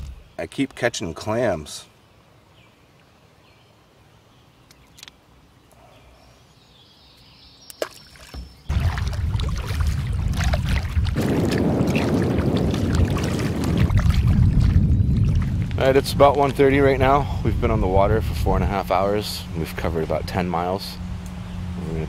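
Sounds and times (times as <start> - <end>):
canoe paddling through water: 7.8 - 21.1
wind on microphone: 8.7 - 20.4.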